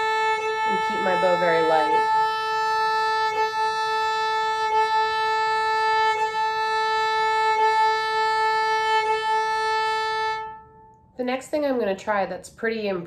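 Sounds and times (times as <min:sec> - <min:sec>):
fiddle bowing one steady note: 0:00.0 - 0:11.2.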